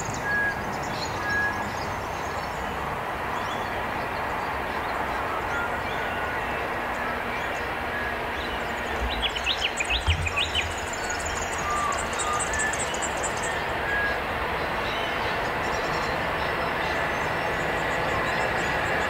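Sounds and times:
distant locomotive rumble: 0:00.0 - 0:19.0
bird chirping: 0:04.8 - 0:19.0.

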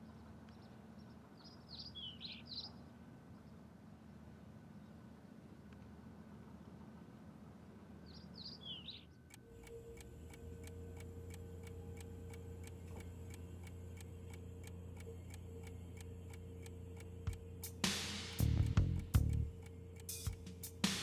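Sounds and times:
faint bird chirps: 0:00.0 - 0:03.6, 0:08.0 - 0:09.4
low steady hum: 0:00.0 - 0:21.0
steady ticking: 0:09.3 - 0:21.0.

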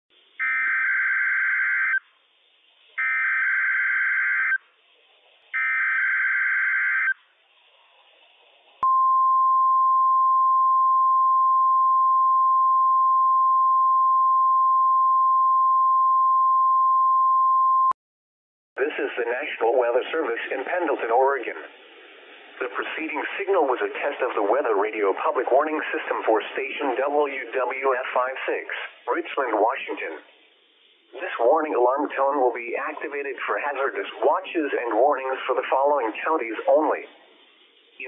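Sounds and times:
steady warning alarm tone: 0:03.0 - 0:04.6.

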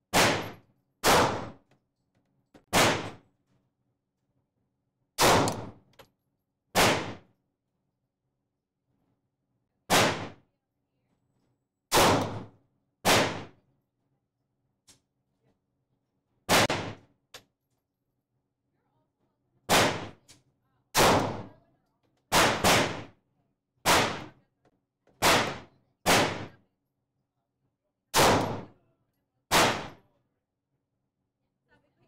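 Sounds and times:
gunshots with echo: 0:00.1 - 0:01.6, 0:02.7 - 0:03.2, 0:05.2 - 0:05.8, 0:06.8 - 0:07.2, 0:09.9 - 0:10.4, 0:11.9 - 0:13.5, 0:16.5 - 0:17.0, 0:21.0 - 0:21.5, 0:28.2 - 0:28.7.

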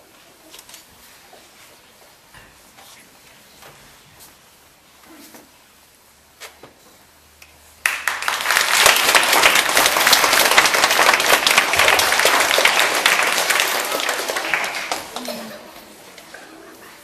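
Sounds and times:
audience applauding: 0:07.8 - 0:16.1.

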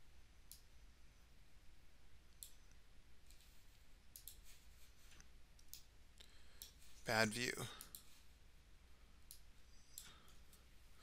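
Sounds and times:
low steady hum: 0:00.0 - 0:11.0
computer mouse clicks: 0:00.5 - 0:00.7, 0:02.3 - 0:03.4, 0:04.1 - 0:04.4, 0:05.2 - 0:05.9.

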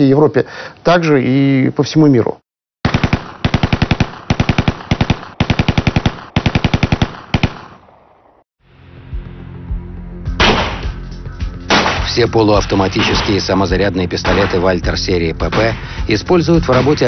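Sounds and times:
automatic gunfire bursts: 0:02.8 - 0:07.7.

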